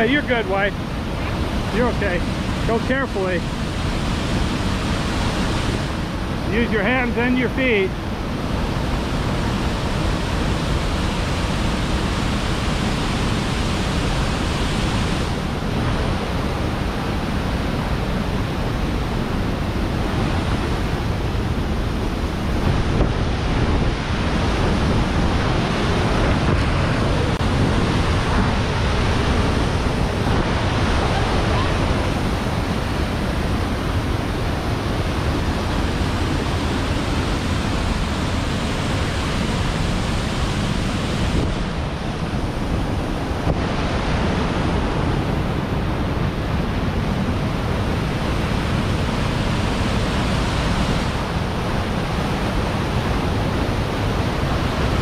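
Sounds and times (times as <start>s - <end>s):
waterfall roaring: 0.0s - 55.0s.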